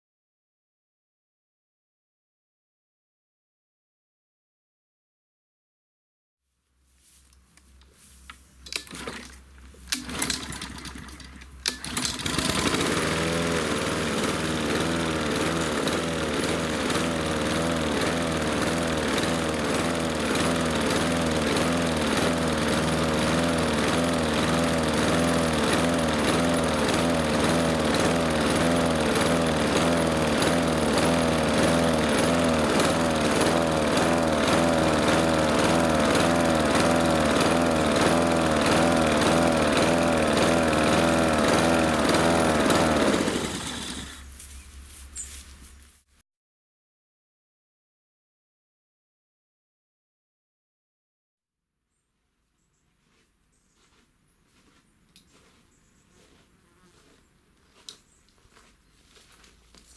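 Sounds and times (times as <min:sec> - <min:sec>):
lawn mower engine surging: 0:08.6 - 0:44.4.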